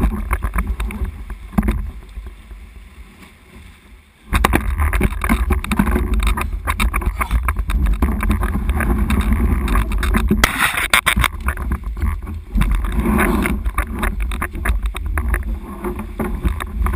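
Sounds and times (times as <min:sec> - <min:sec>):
water and wind rumble on microphone: 0:00.0 - 0:16.9
water slopping and splashing: 0:00.0 - 0:16.9
small splashy knocks: 0:04.3 - 0:16.9.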